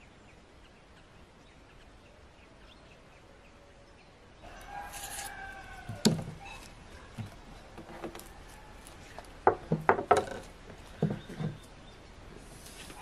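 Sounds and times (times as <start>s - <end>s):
dishes knocking on wooden table: 9.4s - 10.4s.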